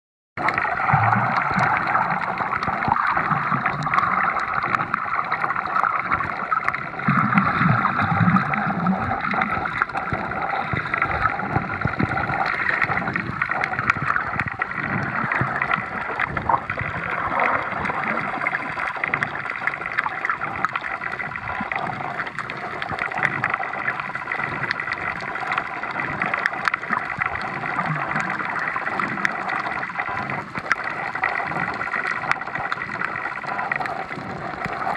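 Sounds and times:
low underwater gurgling: 0:00.4 - 0:34.9
muffled underwater wash: 0:00.4 - 0:34.9.

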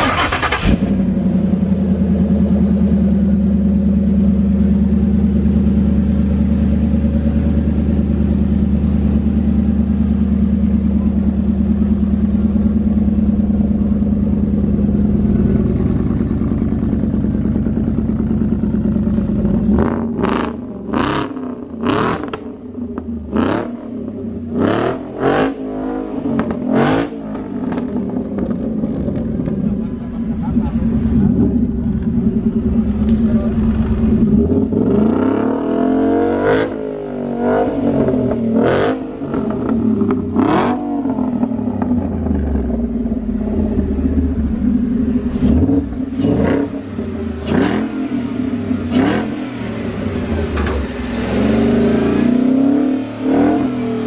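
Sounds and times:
pickup truck engine idling: 0:00.0 - 0:19.9, 0:29.2 - 0:34.4
engine throttle blips: 0:26.4 - 0:35.7.

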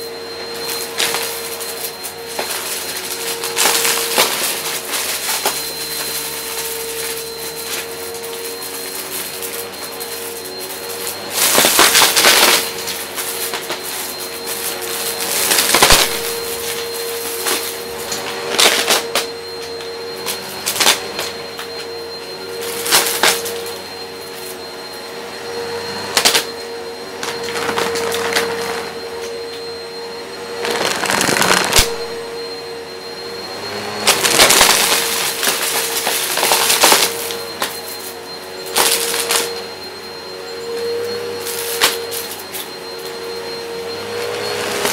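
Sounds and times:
vacuum cleaner motor hum: 0:00.0 - 0:44.9
cardboard crunching and rattling: 0:30.6 - 0:32.0.

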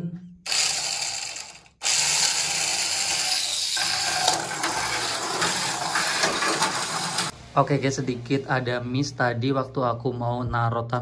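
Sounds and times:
toy car motor whirring: 0:00.5 - 0:07.3.

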